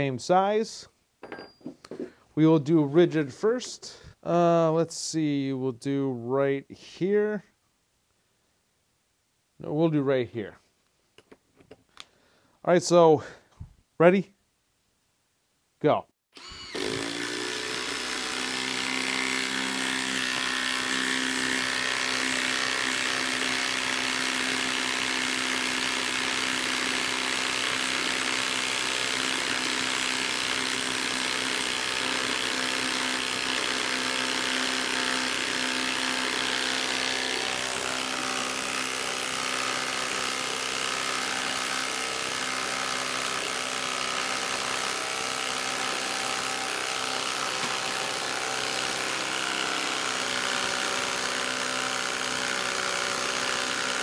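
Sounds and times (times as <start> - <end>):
impact driver hammering: 16.7 - 54.0.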